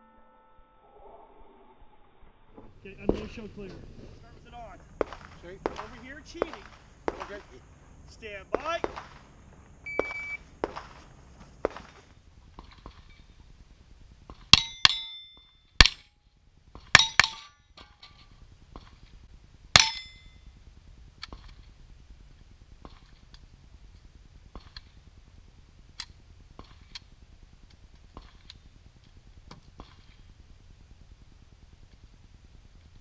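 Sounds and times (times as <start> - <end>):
rifle shots: 2.9 - 7.6, 8.5 - 12.2
steel plate clanging: 14.6 - 16.1, 17.0 - 18.3, 19.8 - 20.4.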